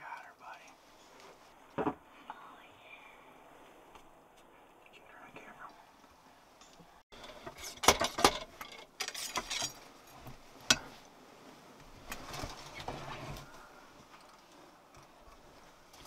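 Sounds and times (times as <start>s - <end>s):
soft rustling: 0.1s - 6.6s, 9.7s - 16.0s
clicks knocks and scraping: 6.6s - 11.0s.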